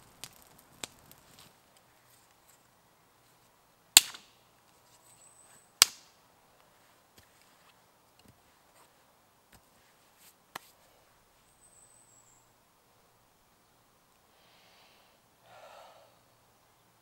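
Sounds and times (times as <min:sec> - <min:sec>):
sharp crack: 0:00.0 - 0:01.5, 0:04.0 - 0:04.4, 0:05.8 - 0:06.2
man sighing: 0:15.4 - 0:16.2.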